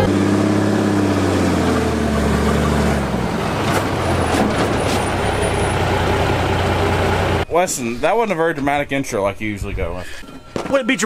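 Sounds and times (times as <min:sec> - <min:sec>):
diesel truck on gravel: 0:00.0 - 0:07.4.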